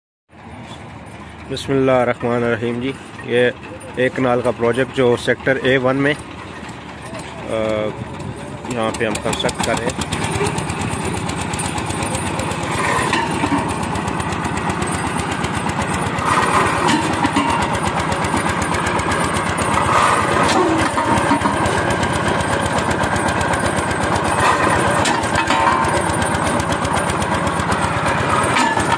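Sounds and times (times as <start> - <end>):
diesel engine chugging: 0.3 - 28.9.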